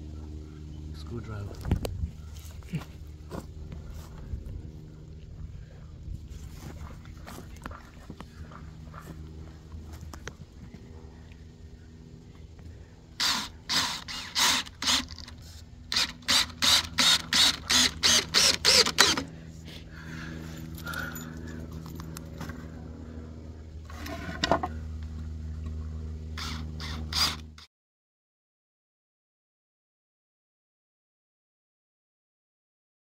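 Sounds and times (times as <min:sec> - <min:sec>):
steady low hum: 0:00.0 - 0:27.7
cordless drill driving screws: 0:13.2 - 0:19.3, 0:26.4 - 0:27.4.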